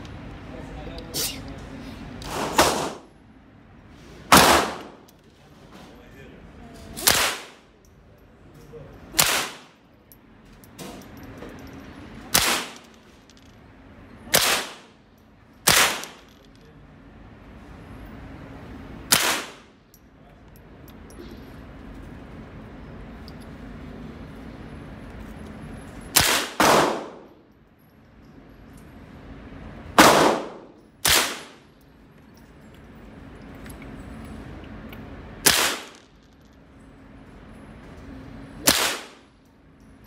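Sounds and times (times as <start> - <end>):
gunshots with echo: 26.2 - 27.2, 30.0 - 31.6.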